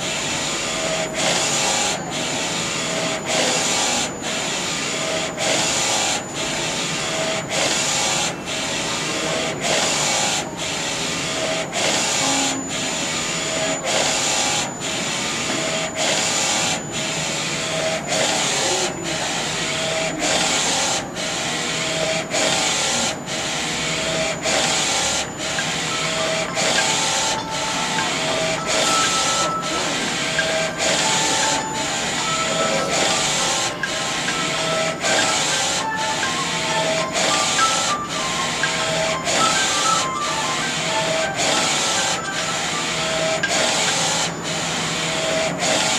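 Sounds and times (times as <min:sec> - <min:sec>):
printer carriage whirring: 0:00.0 - 0:45.9
thin high whine: 0:25.0 - 0:44.4.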